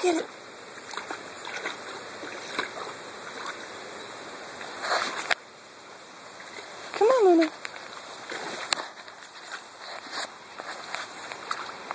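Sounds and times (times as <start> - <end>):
dog splashing through water: 0.0 - 3.7.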